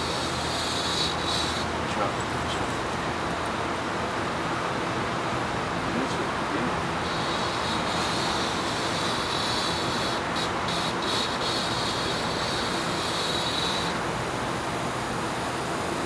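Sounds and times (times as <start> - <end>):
razor blade scraping glass: 0.0 - 1.7, 7.0 - 14.0.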